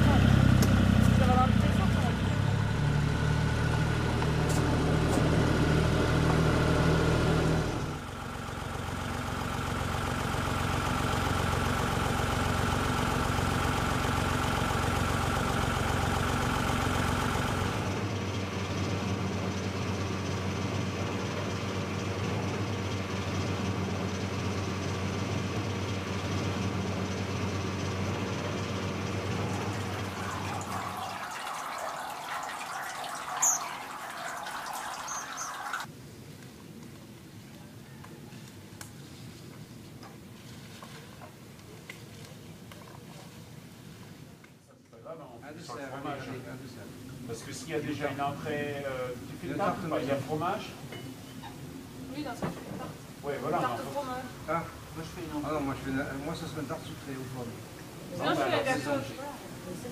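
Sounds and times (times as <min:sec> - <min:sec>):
tractor engine running: 0:00.0 - 0:35.9
grape press mechanical hum: 0:29.0 - 0:35.9.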